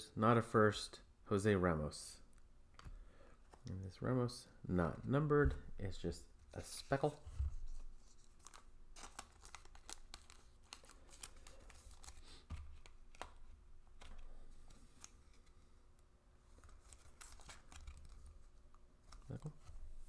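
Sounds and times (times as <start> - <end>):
cards clicking and rustling: 7.7 - 15.6, 16.6 - 19.7.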